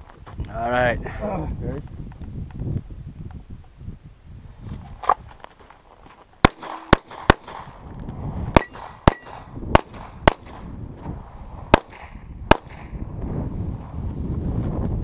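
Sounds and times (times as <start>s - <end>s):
pistol shots echoing: 6.4s - 7.8s.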